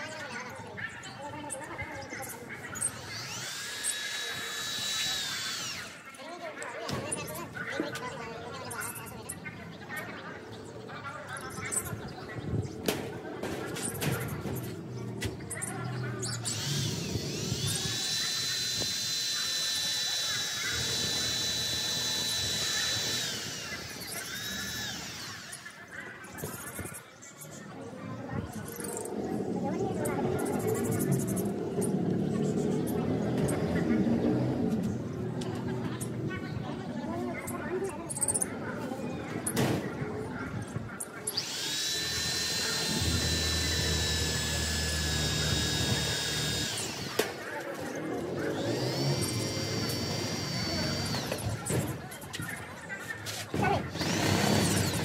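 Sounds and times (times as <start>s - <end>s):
electric drill boring into sheet metal: 2.8s - 6.0s, 16.3s - 25.8s, 41.3s - 47.4s, 48.4s - 51.7s, 53.9s - 55.0s.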